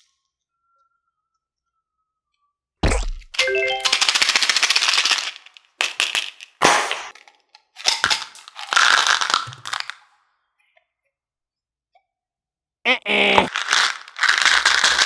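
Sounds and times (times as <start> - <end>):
candies rattling in plastic tube: 3.4 - 10.1, 13.5 - 15.0.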